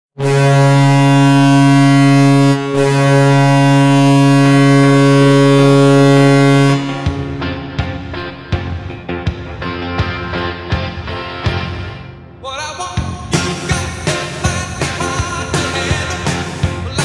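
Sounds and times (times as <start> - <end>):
low ship-style horn blast: 0.2 - 10.1
drum hits: 6.8 - 11.8.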